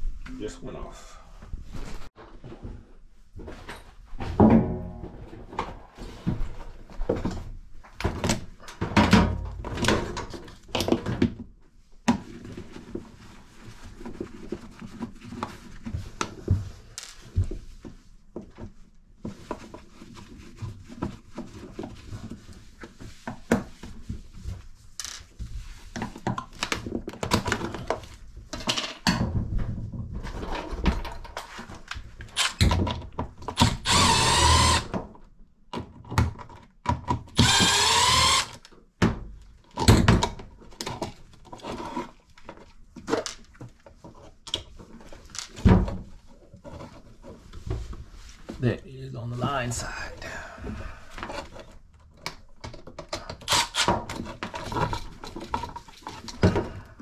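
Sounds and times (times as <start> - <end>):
cordless drill whirring: 33.6 - 34.9, 37.4 - 38.6, 53.5 - 53.9.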